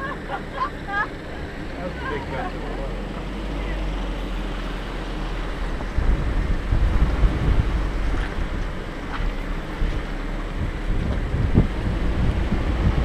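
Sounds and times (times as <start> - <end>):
off-road engine rumbling: 0.0 - 13.0
wind buffeting microphone: 3.2 - 13.0.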